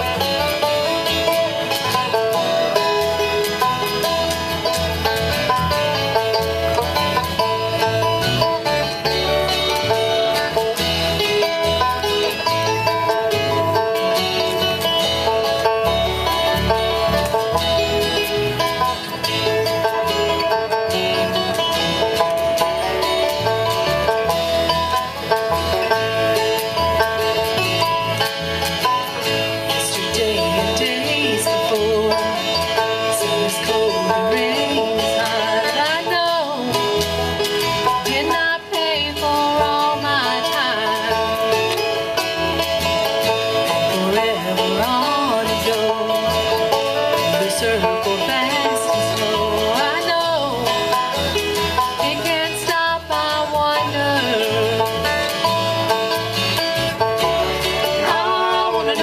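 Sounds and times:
bluegrass band playing: 0:00.0 - 0:59.0.

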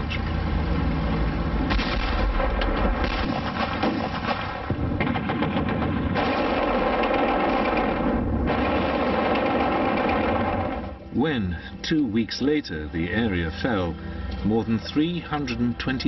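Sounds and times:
battle gunfire: 0:01.7 - 0:10.9
machine-gun fire: 0:01.7 - 0:11.0.

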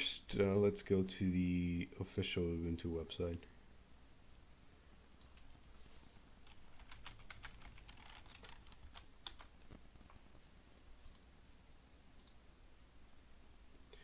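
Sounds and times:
typing on computer keyboard: 0:06.4 - 0:09.5.

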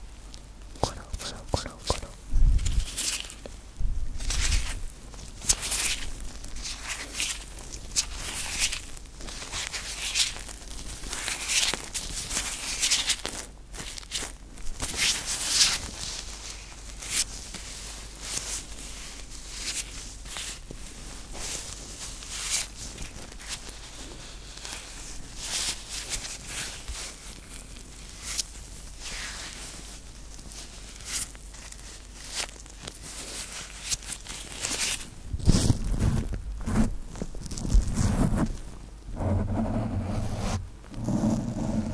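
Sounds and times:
rubber gloves rubbing: 0:18.3 - 0:41.9.

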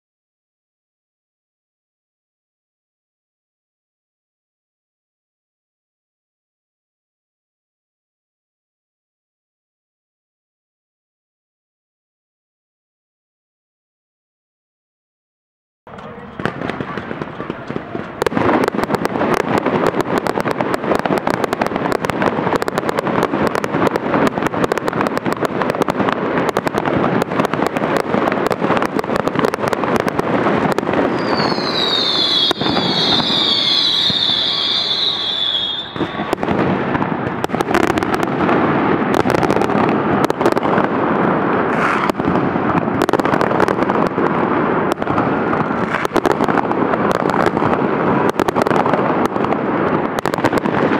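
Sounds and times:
fireworks bangs and crackle: 0:15.9 - 0:50.9
fireworks whistles falling in pitch: 0:31.0 - 0:36.9.

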